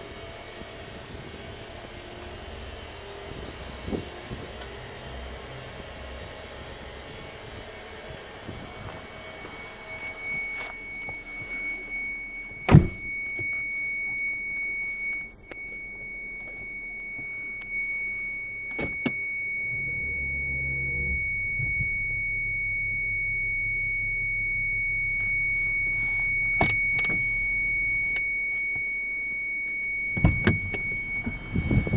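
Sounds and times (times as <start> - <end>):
high-pitched continuous buzzer tone: 0.0 - 31.9
car door shutting: 12.6 - 13.6, 18.7 - 22.1, 25.9 - 27.4, 30.2 - 31.9.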